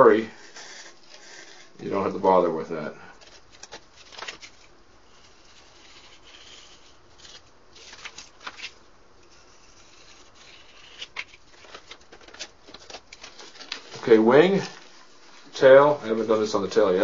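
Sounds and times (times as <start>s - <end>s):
paper and balsa scraping on cardboard: 5.1s - 8.1s.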